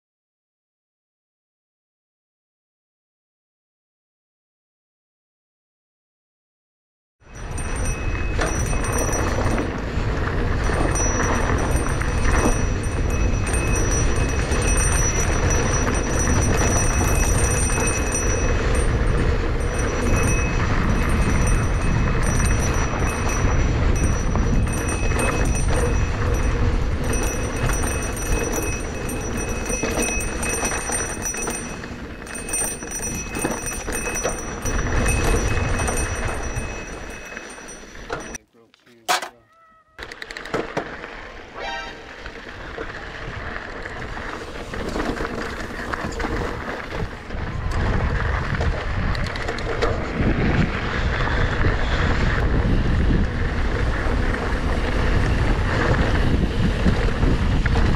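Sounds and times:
wind rumble on microphone: 0:07.3 - 0:38.4, 0:42.3 - 0:57.9
bike rattles and clicks: 0:07.3 - 0:39.4, 0:40.0 - 0:57.9
bike tyre noise: 0:07.4 - 0:57.9
high-pitched tone: 0:41.6 - 0:42.1.

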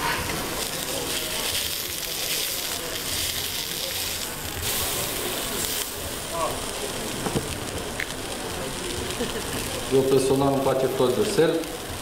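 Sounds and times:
metal spatula turning patty: 0:00.0 - 0:06.8
patty sizzling in oil: 0:00.0 - 0:12.0.

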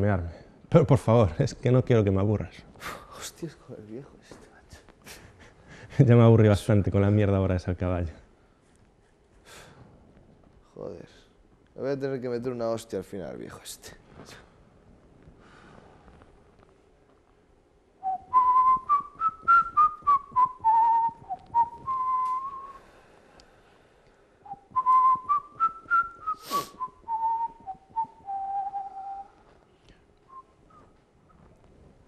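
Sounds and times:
person whistling a tune: 0:18.0 - 0:22.8, 0:24.5 - 0:29.4.

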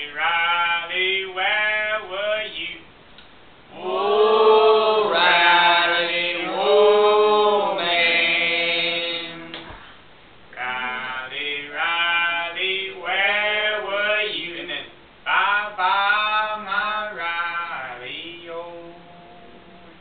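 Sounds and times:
man singing unaccompanied: 0:00.0 - 0:02.9, 0:03.7 - 0:09.6, 0:10.5 - 0:20.0.

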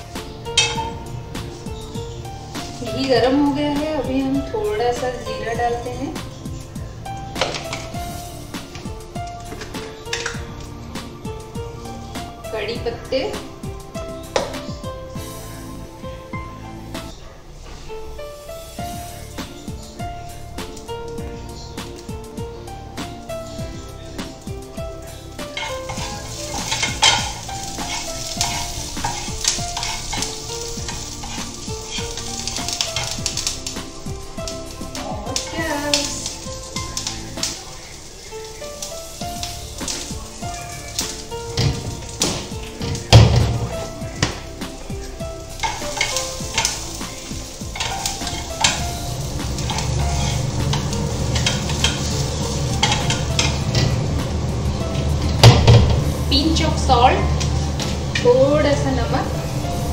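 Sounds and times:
seeds sizzling in hot oil: 0:00.0 - 0:59.9
spatula scraping frying pan: 0:00.4 - 0:03.4, 0:25.0 - 0:54.2.

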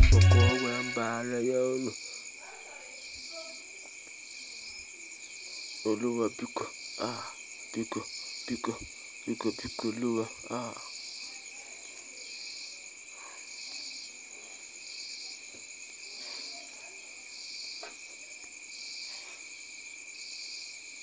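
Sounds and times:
pulsing insect chirp: 0:00.0 - 0:21.0
insects trilling: 0:00.5 - 0:21.0.

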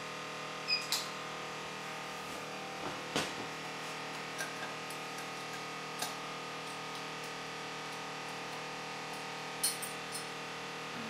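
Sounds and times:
water chiller humming: 0:00.0 - 0:11.0.

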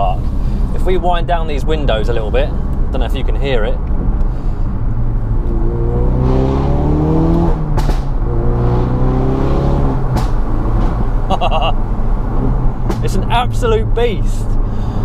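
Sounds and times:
exhaust cracking: 0:00.0 - 0:15.0
car engine accelerating: 0:03.7 - 0:15.0.

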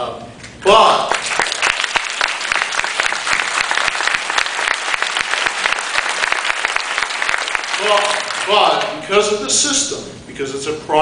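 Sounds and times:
audience applauding: 0:01.1 - 0:09.0.

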